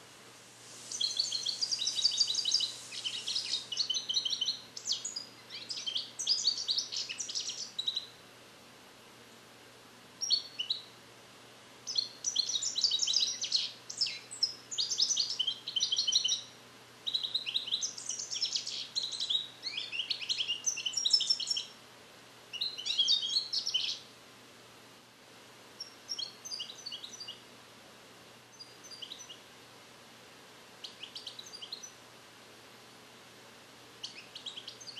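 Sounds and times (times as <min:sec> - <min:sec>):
goldfinch twittering song: 0:00.9 - 0:08.1, 0:11.9 - 0:21.8, 0:22.5 - 0:24.0, 0:25.8 - 0:27.4, 0:28.6 - 0:29.4, 0:30.8 - 0:32.0, 0:34.0 - 0:34.9.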